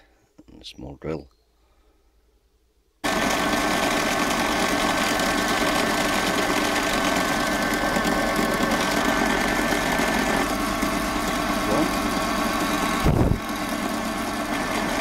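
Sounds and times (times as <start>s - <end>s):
drill bit drilling through metal: 3.0s - 15.0s
drill press motor whine: 3.0s - 15.0s.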